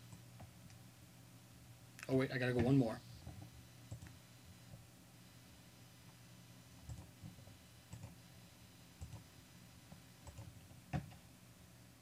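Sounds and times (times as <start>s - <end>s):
faint low hum: 0.0s - 12.0s
computer mouse clicking: 3.2s - 4.2s, 6.8s - 8.2s, 9.0s - 9.3s, 9.9s - 11.2s.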